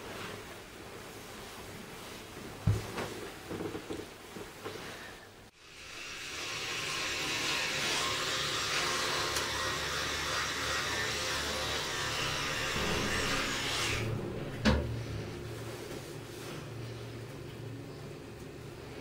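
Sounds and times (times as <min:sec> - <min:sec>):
electric toothbrush buzzing: 0:05.6 - 0:14.1.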